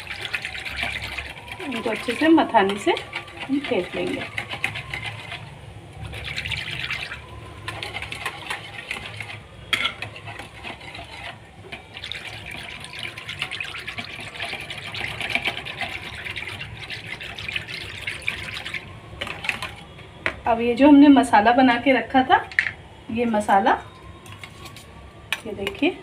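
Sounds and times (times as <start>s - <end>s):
whisk beating in a plastic bowl: 0.0s - 9.4s, 12.0s - 19.8s.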